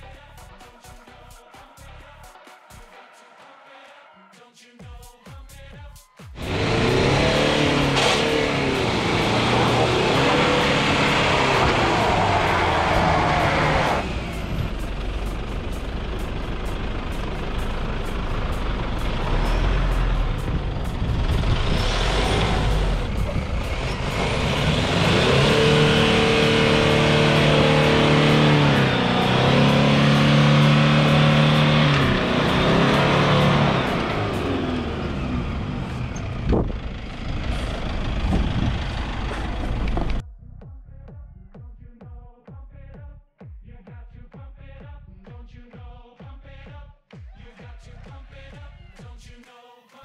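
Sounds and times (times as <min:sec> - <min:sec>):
truck engine revving: 0:06.4 - 0:40.2.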